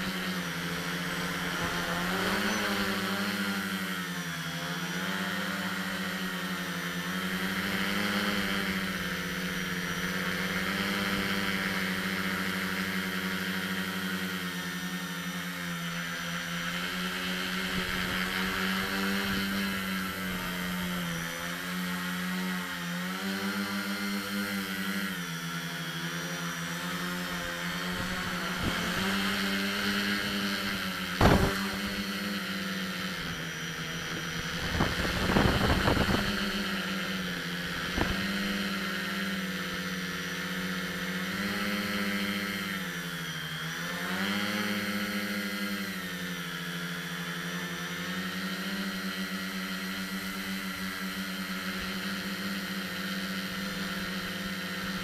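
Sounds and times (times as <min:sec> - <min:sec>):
drone propellers whining: 0:00.0 - 0:55.0.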